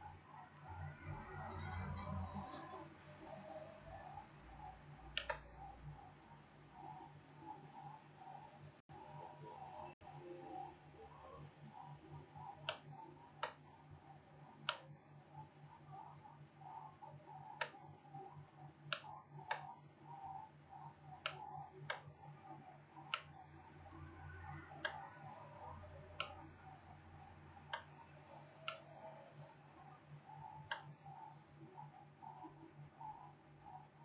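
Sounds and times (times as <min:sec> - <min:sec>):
faint low hum: 0:00.0 - 0:34.0
computer mouse clicking: 0:02.3 - 0:08.4, 0:11.3 - 0:34.0.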